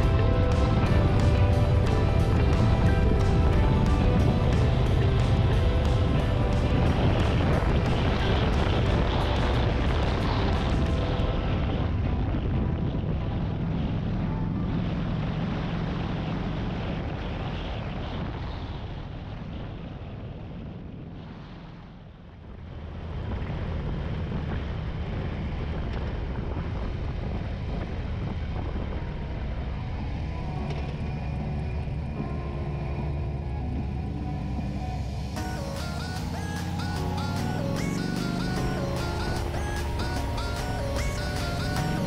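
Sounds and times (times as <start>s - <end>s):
wind noise on microphone: 0.0s - 15.6s, 22.4s - 32.4s
motorcycle engine running: 0.0s - 21.2s, 30.5s - 42.0s.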